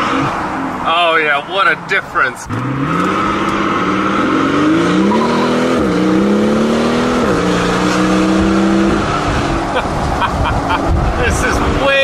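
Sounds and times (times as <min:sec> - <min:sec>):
car engine accelerating: 0:02.4 - 0:11.2.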